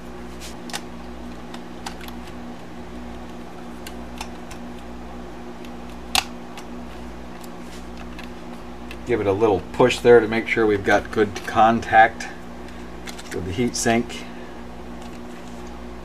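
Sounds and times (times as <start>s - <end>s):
steady electrical hum: 0.0s - 16.0s
clicks and taps of laptop parts: 5.8s - 6.7s.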